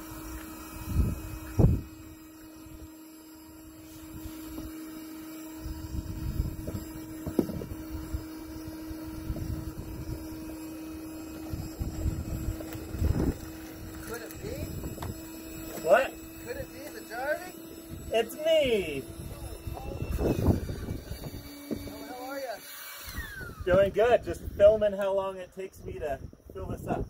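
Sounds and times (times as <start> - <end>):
wind buffeting microphone: 0.0 - 2.9, 5.6 - 16.7, 17.8 - 22.1
faint steady hum: 0.0 - 27.0.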